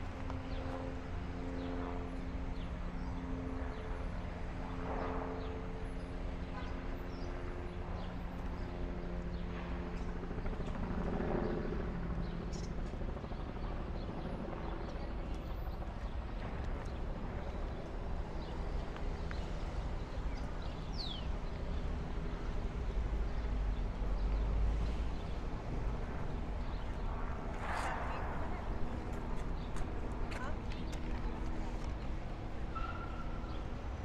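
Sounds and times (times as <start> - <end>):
traffic rumble: 16.1 - 34.0.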